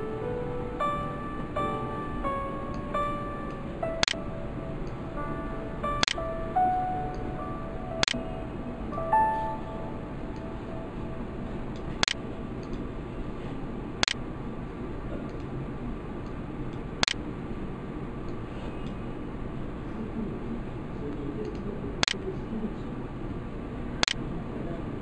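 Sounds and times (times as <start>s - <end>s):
steady background hiss: 0.0s - 25.0s
computer mouse clicks: 12.0s - 12.8s, 14.0s - 14.2s, 21.4s - 22.2s.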